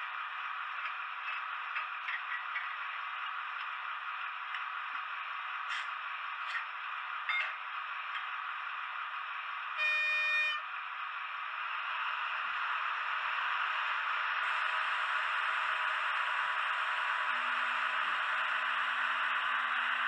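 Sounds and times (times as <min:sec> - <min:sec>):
model train horn blast: 0:09.8 - 0:10.7.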